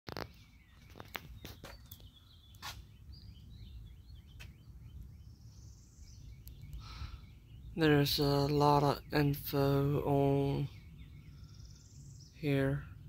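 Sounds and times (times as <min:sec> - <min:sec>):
birds chirping: 0:00.1 - 0:13.0.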